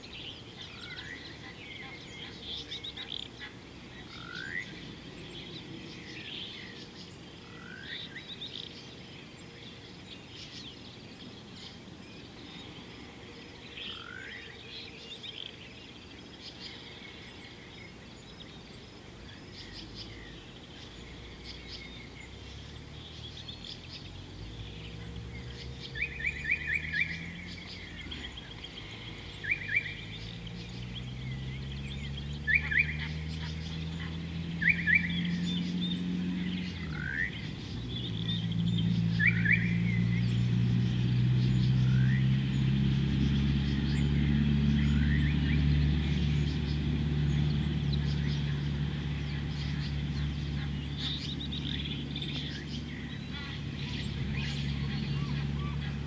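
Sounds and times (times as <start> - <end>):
low drone rising in pitch: 19.6 - 56.0
bird whistled notes: 39.1 - 39.8.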